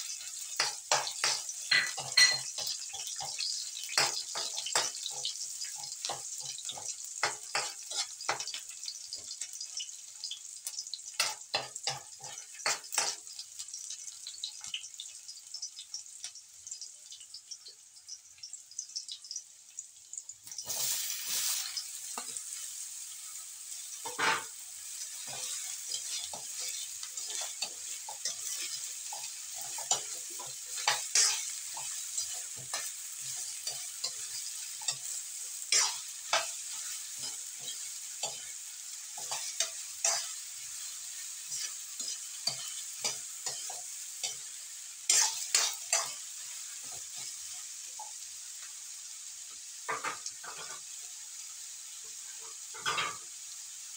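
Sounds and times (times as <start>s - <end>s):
spatula scraping a wok: 0.0s - 9.2s, 20.6s - 47.7s
vegetables sizzling in oil: 0.0s - 53.9s.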